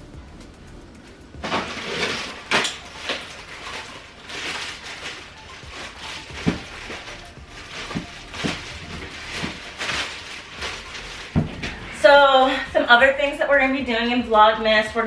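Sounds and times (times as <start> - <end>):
packaging rustling and handling: 1.1 - 12.5.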